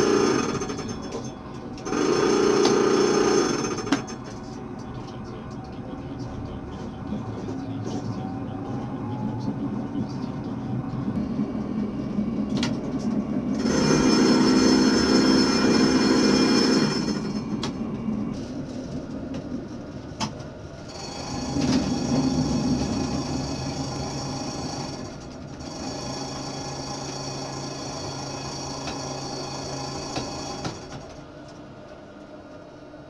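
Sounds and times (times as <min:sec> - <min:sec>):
high steady whine: 0:00.0 - 0:26.3
tram running on rails: 0:00.0 - 0:33.0.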